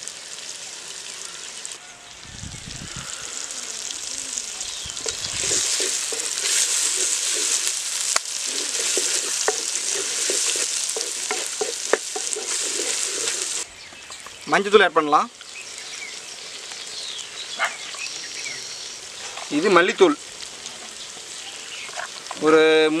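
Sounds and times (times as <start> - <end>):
vegetables sizzling in hot oil: 0.0 - 23.0
wooden spatula scraping pot: 5.0 - 13.6.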